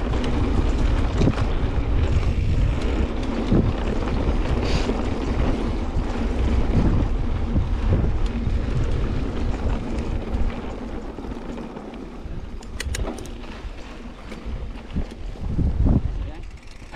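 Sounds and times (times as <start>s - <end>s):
bike tyres rolling on dirt trail: 0.0s - 16.9s
wind buffeting microphone: 0.0s - 16.9s
sharp clicks: 12.5s - 13.4s.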